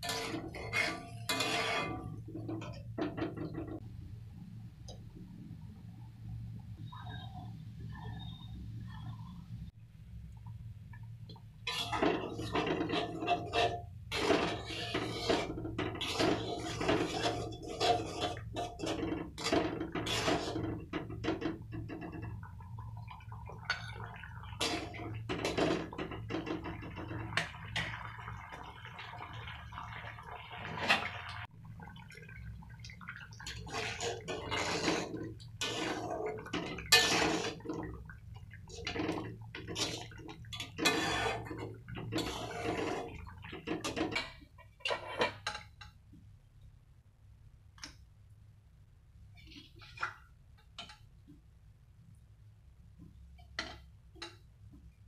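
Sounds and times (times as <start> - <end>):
spatula scraping a pan: 0.0 - 3.8, 11.7 - 22.4, 23.6 - 28.0, 33.4 - 45.8
curry bubbling in a wok: 0.0 - 46.3, 52.8 - 55.0.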